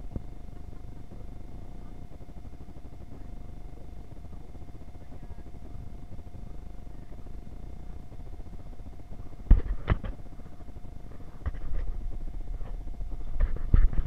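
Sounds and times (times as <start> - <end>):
faint steady hum: 0.0 - 14.0
low muffled rumble: 0.0 - 14.0
knocks and rubs on camera: 9.4 - 10.3, 11.1 - 14.0.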